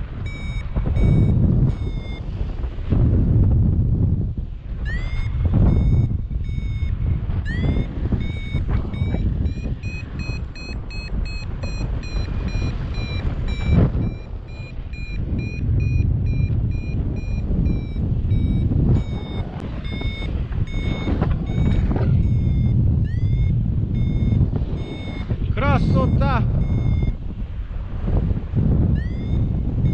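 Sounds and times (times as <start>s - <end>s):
wind rushing on microphone: 0.0s - 29.9s
short high beeps: 0.2s - 2.3s, 4.8s - 27.2s, 28.9s - 29.9s.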